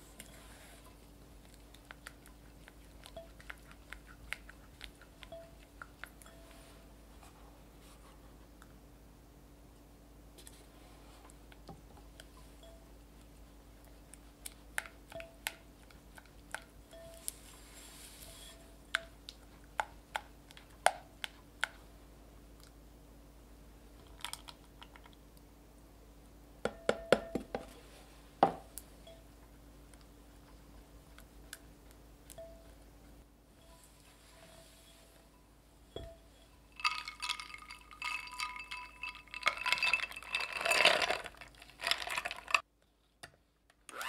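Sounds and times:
soft wet stirring: 0.0 - 8.8, 27.8 - 42.7
spatula tapping glass bowl: 36.0 - 40.4.

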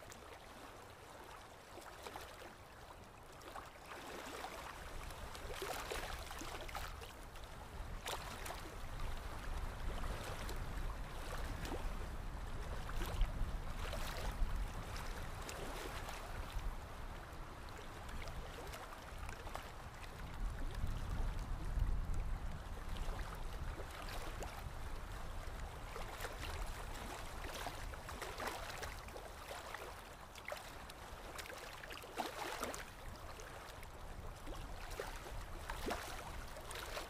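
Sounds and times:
water splashing: 25.9 - 37.0.

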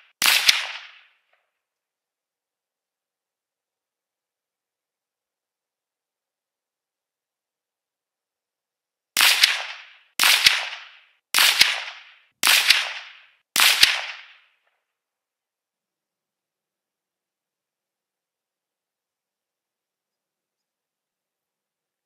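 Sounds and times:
rifle shots: 0.0 - 1.2, 9.2 - 14.5.

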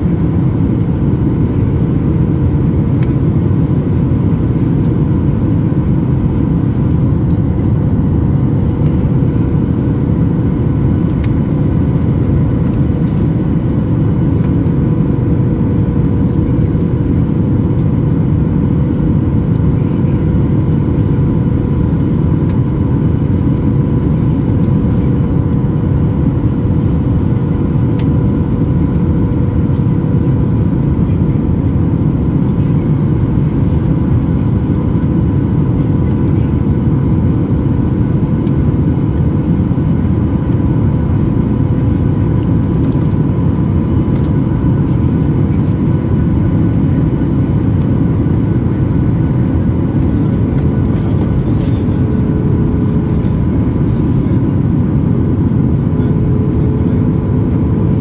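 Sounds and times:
airflow and jet engine rush: 0.0 - 58.0.

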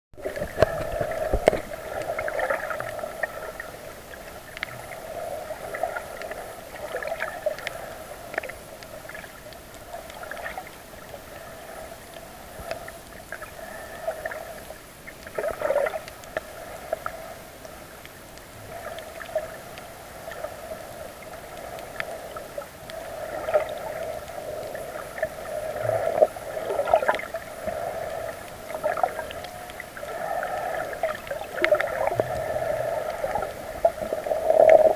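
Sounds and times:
underwater wavering hum: 0.2 - 34.9
water clicks and gurgles: 0.2 - 34.9.

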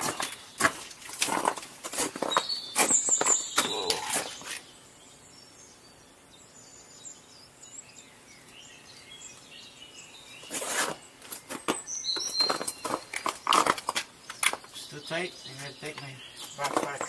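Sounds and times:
boots knocking on ice and rock: 0.0 - 3.9, 10.8 - 14.7
faint bird chirps: 2.2 - 13.5.

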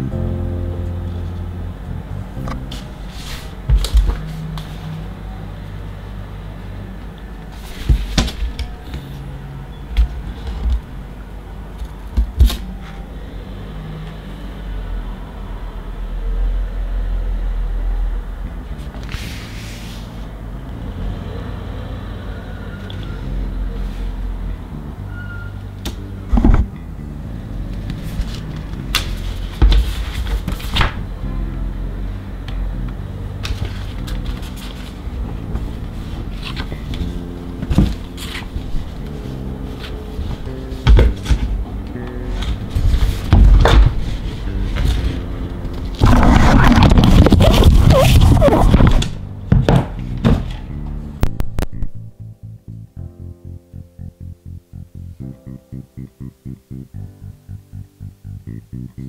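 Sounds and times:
steady low drone: 0.0 - 7.6, 12.9 - 59.0
paper rustling: 46.0 - 49.1.

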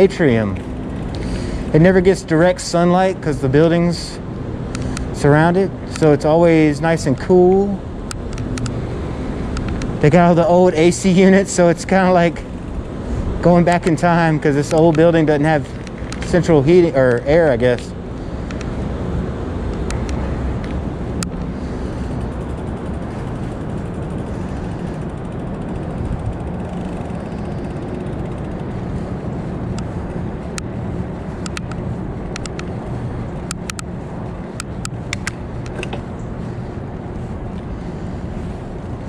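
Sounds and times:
sharp clicks and rattles: 0.0 - 3.2, 4.6 - 18.8, 19.6 - 36.6
bicycle riding rumble: 0.0 - 39.0
wind on microphone: 18.0 - 39.0.

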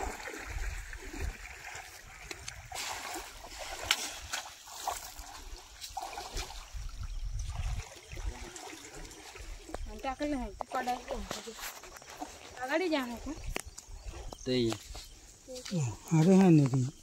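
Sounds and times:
water splashing from wading: 0.0 - 13.5.

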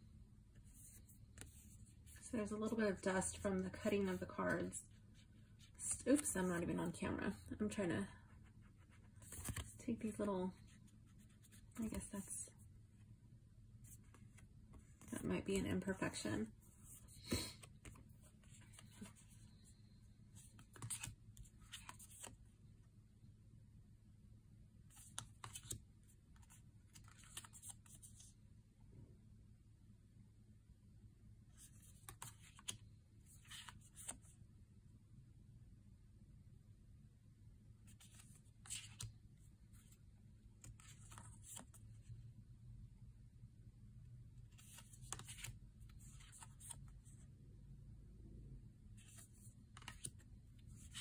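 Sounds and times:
low room hum: 0.0 - 51.0
cards rustling and tapping: 9.2 - 9.8, 20.4 - 22.4, 25.0 - 25.8, 26.4 - 28.2, 44.5 - 46.9, 49.0 - 51.0.

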